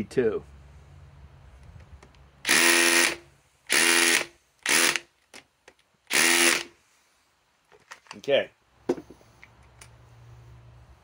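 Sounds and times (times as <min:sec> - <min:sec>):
impact driver bursts: 0:02.4 - 0:05.1, 0:06.1 - 0:06.8.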